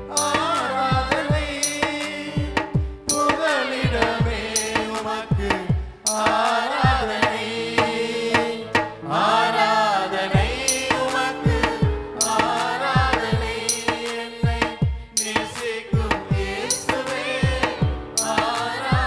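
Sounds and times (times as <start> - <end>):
tabla-style drum rhythm: 0.0 - 9.0, 10.4 - 19.0
held keyboard chords: 0.0 - 19.0
person singing worship song: 0.0 - 19.0.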